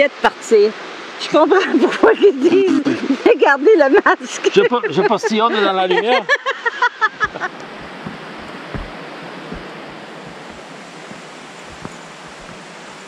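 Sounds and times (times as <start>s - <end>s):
people laughing: 1.6s - 3.3s, 3.9s - 7.6s
waterfall rushing: 7.4s - 13.0s
faint low thumps: 7.7s - 12.6s.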